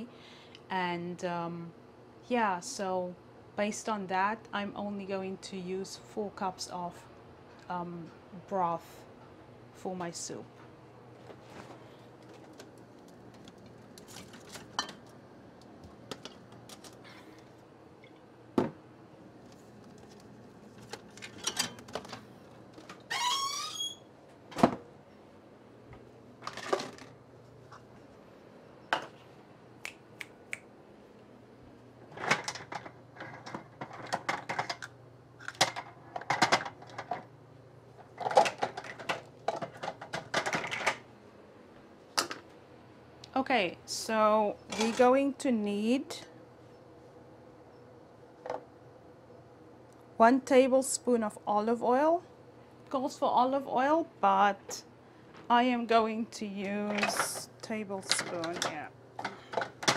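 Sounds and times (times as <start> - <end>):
short wavering squeak: 23.1 - 24.1.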